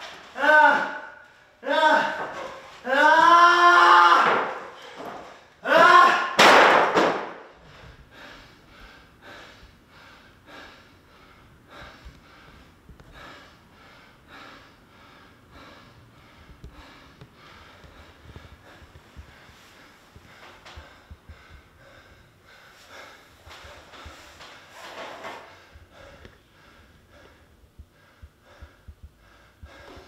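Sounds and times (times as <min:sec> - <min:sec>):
man panting: 0:00.0 - 0:03.1, 0:07.6 - 0:30.0
man crying out: 0:00.3 - 0:04.5, 0:05.6 - 0:06.4.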